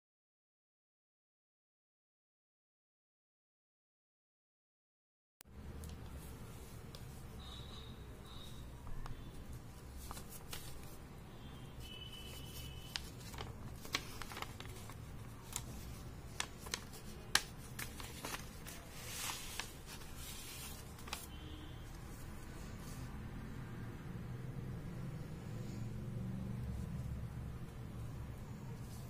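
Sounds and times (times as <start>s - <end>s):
paper envelope crinkling: 9.1s - 11.0s, 11.9s - 21.5s
paper sliding rustle: 9.4s - 11.0s, 12.2s - 23.1s.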